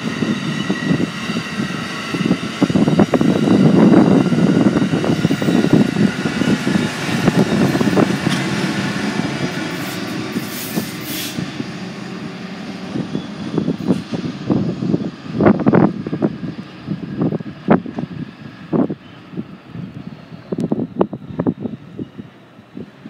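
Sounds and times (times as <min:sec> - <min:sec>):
train wheels clattering on rails: 0:00.0 - 0:11.6
diesel locomotive passing: 0:00.0 - 0:23.0.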